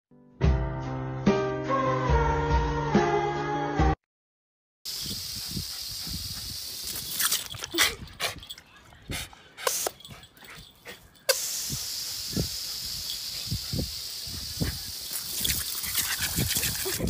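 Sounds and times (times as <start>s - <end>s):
garden hose spraying concrete: 4.9s - 8.6s, 9.6s - 17.0s.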